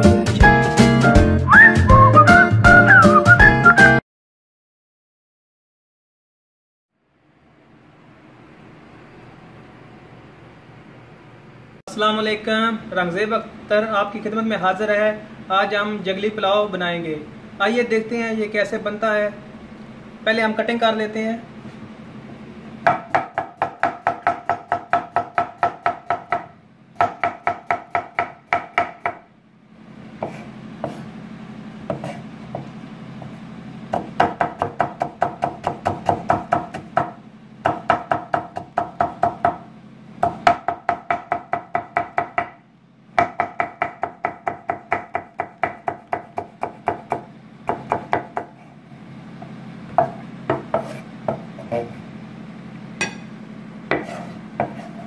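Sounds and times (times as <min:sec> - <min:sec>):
knife chopping on wooden board: 0:22.8 - 0:29.2, 0:30.2 - 0:31.1, 0:31.8 - 0:39.6, 0:40.2 - 0:42.6, 0:43.2 - 0:48.7, 0:49.4 - 0:51.7, 0:53.9 - 0:55.0.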